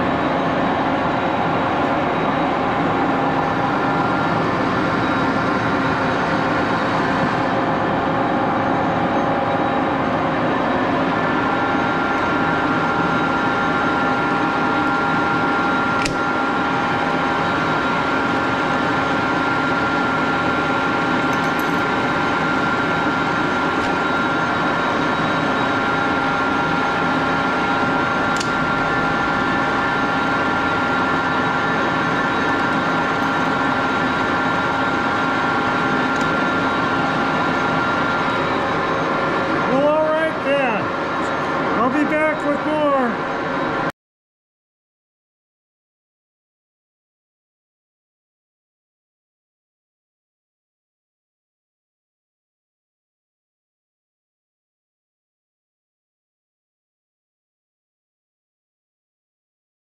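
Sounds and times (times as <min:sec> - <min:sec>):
lathe humming with whining tones: 0:00.0 - 0:43.9
sharp click: 0:16.0 - 0:16.2, 0:28.4 - 0:28.6.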